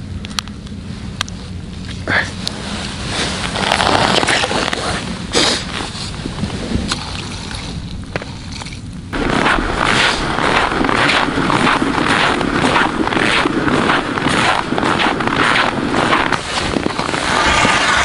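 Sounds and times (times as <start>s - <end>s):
stick stirring slush: 6.9s - 18.0s
loud rough rhythmic noise: 9.1s - 18.0s.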